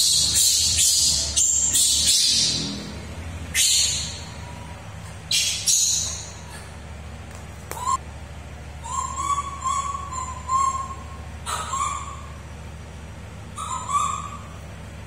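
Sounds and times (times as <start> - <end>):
baby macaque coo calls: 8.8 - 12.4, 13.6 - 14.6.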